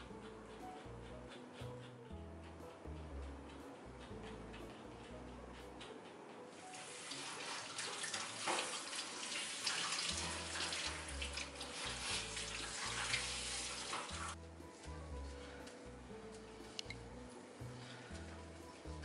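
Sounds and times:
shower water spraying and splashing: 6.6s - 14.4s.

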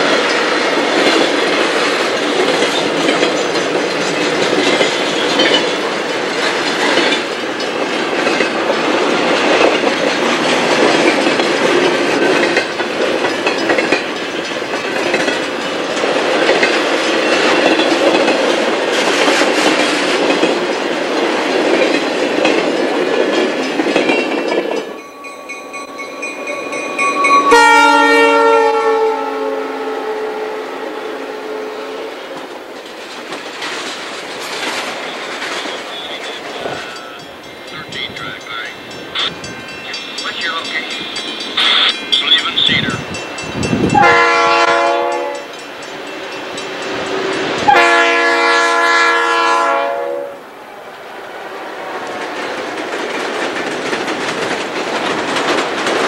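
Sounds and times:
diesel locomotives passing: 0.0s - 56.0s
freight train wheels rumbling: 0.0s - 56.0s
multi-note locomotive horn: 27.0s - 32.3s, 43.9s - 45.5s, 47.1s - 50.4s.

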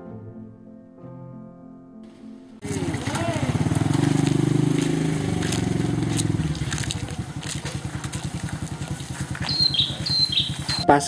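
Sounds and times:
small engine running: 2.6s - 10.8s.

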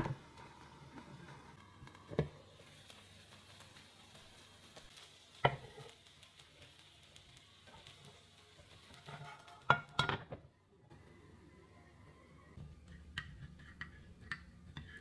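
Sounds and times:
faint hiss: 0.0s - 9.9s.

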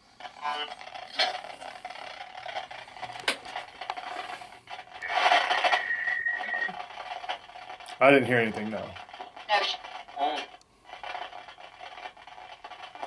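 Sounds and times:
steady high whistle: 5.0s - 6.8s.

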